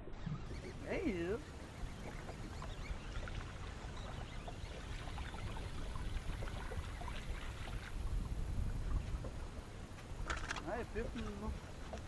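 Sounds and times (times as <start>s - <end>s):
water lapping against boat hull: 0.0s - 12.0s
low steady rumble: 5.7s - 11.9s.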